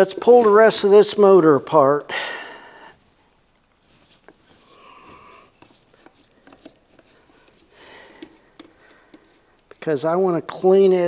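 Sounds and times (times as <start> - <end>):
screwdriver clicks and scrapes: 5.6 - 9.8.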